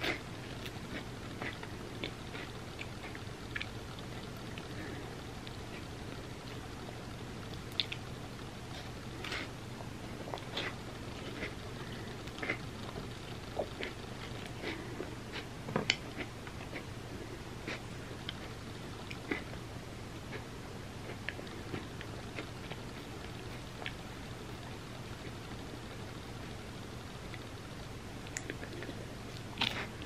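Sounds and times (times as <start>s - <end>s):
chewing chips: 7.5s - 8.1s, 28.3s - 30.0s.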